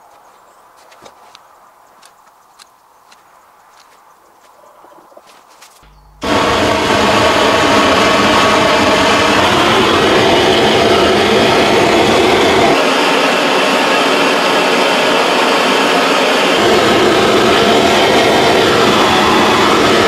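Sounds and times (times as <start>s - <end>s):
blowtorch flame roaring: 6.2s - 20.0s.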